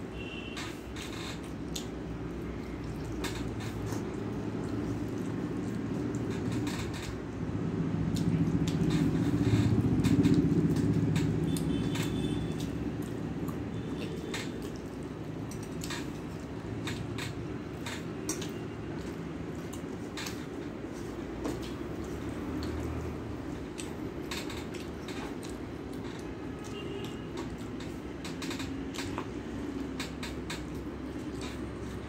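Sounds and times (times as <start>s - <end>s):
chewing smacks: 1.4s - 6.6s, 9.7s - 17.0s, 17.8s - 28.0s.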